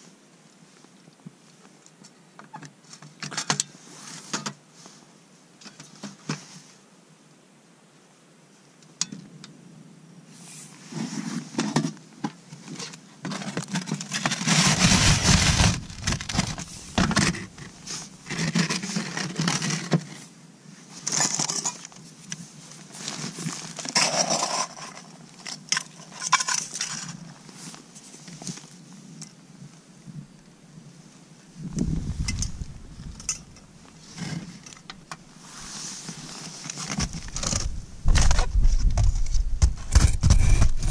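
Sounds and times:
scraping: 0:13.3 - 0:19.9.

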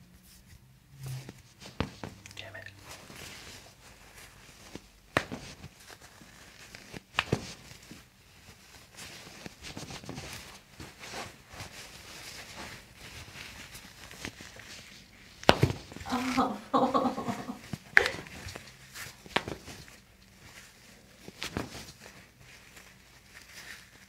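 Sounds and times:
hands rustling on skin: 0:00.2 - 0:24.0.

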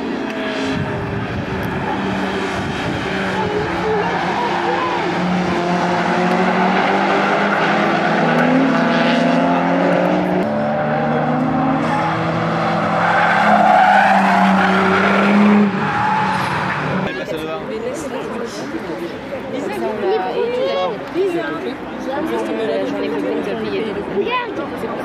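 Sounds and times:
race car engines: 0:00.0 - 0:25.0
tyres squealing: 0:10.9 - 0:17.1.

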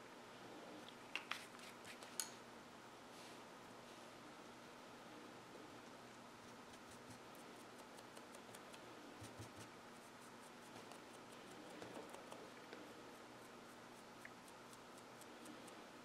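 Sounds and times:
low steady hiss: 0:00.0 - 0:16.0
paintbrush scratching on paper towel: 0:06.4 - 0:15.8.

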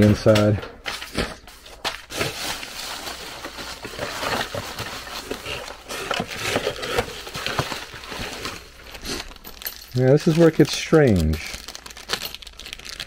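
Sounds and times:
plastic packaging crinkling: 0:00.0 - 0:13.0
cardboard shuffling: 0:00.9 - 0:09.2.

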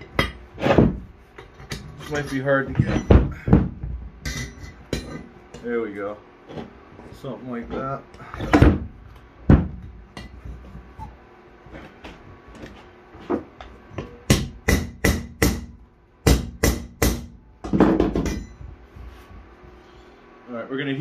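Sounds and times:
hammer striking metal on anvil: 0:14.0 - 0:17.4, 0:18.0 - 0:18.6.

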